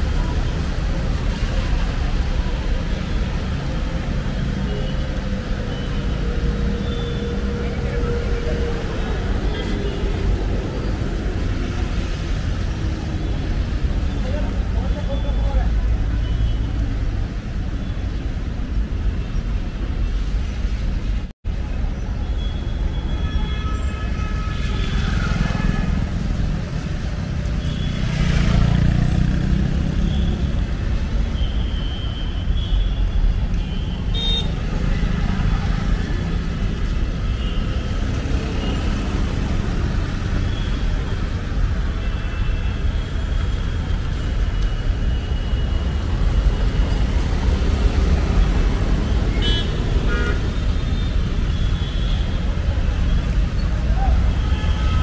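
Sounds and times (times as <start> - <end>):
vehicle horns tooting: 31.4 - 34.6, 49.3 - 53.3.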